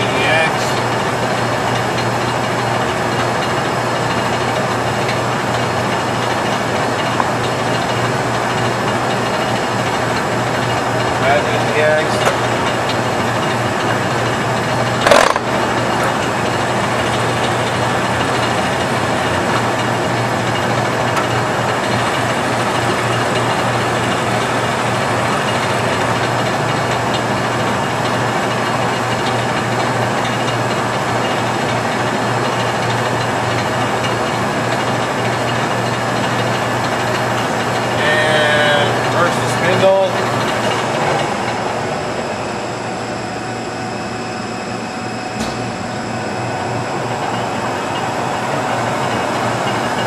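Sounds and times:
lathe motor and gearing humming: 0:00.0 - 0:50.0
sharp clunk: 0:45.4 - 0:45.7.

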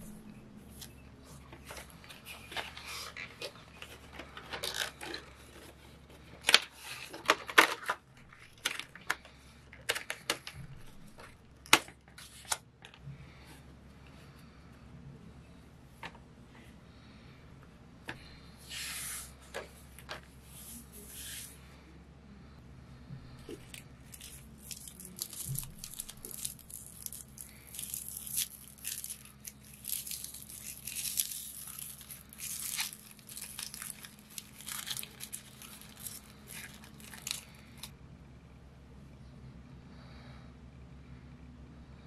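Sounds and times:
paper pages swishing: 0:20.4 - 0:21.6
foil wrapper crackling: 0:23.6 - 0:37.9.

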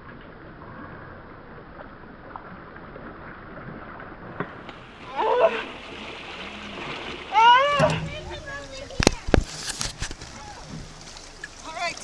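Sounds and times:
river water rushing: 0:04.7 - 0:12.0.

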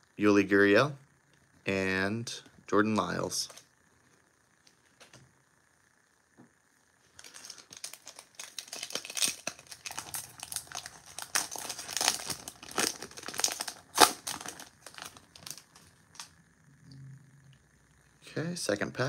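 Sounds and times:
wrapper tearing and crinkling: 0:07.2 - 0:16.3.

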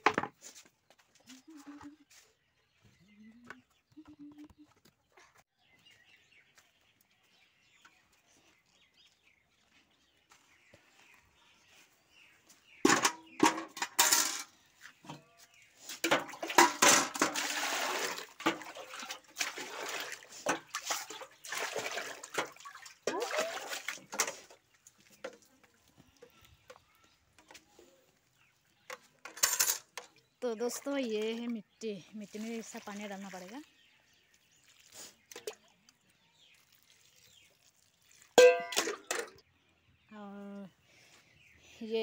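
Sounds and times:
water pouring into metal bucket: 0:15.9 - 0:24.7, 0:34.3 - 0:39.4.

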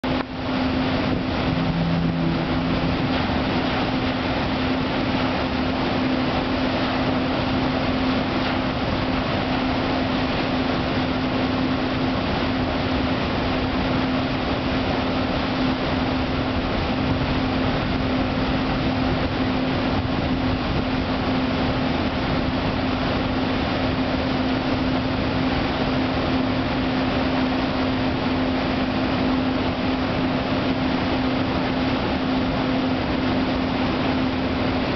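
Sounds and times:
engine hum: 0:00.0 - 0:34.9
waterjets churning water: 0:00.0 - 0:34.9
brief low tone: 0:01.1 - 0:03.6.

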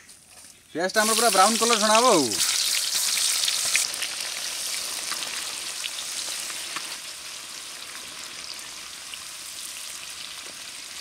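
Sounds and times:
onions sizzling in hot oil: 0:00.9 - 0:11.0.

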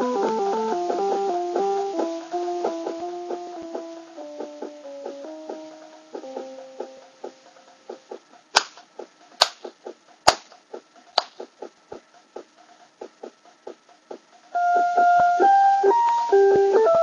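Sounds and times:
held keyboard melody notes: 0:00.0 - 0:07.6, 0:14.6 - 0:17.0
keyboard rhythm pattern ticking: 0:00.0 - 0:17.0.

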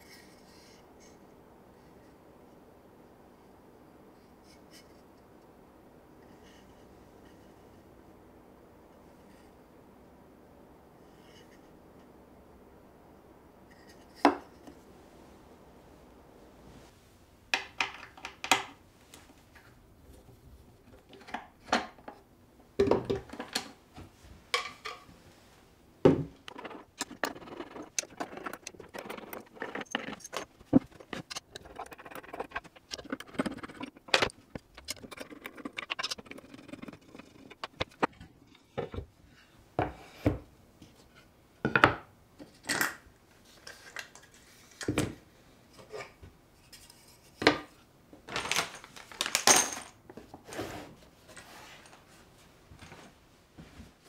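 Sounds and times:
rubbing and scraping: 0:26.3 - 0:38.7.

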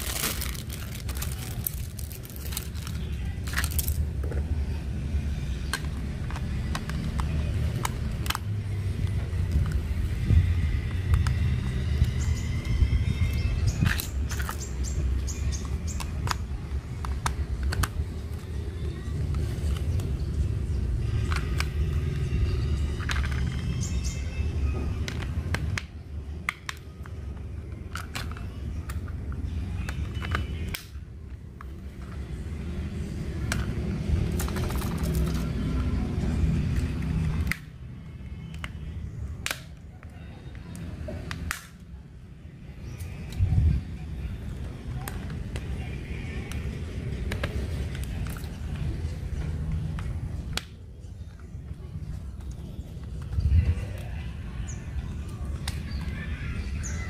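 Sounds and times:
steady low rumble: 0:00.0 - 0:23.5
low steady background rumble: 0:00.0 - 0:57.0
plastic toy parts clicking: 0:05.6 - 0:09.8, 0:15.5 - 0:18.4, 0:21.1 - 0:24.0, 0:24.9 - 0:31.0, 0:33.4 - 0:35.9.

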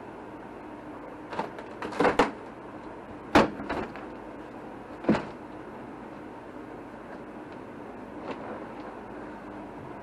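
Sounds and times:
steady low hum: 0:00.0 - 0:10.0
wood paneling cracking and knocking: 0:01.3 - 0:02.4.

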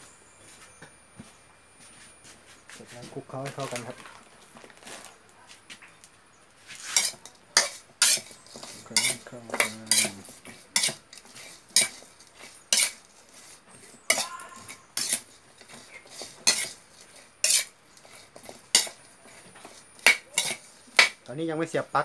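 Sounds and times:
metal spoon scraping metal pan: 0:06.8 - 0:21.2.

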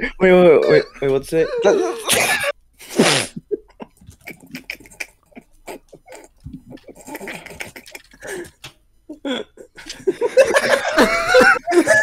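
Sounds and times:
keyboard typing: 0:05.8 - 0:08.8.

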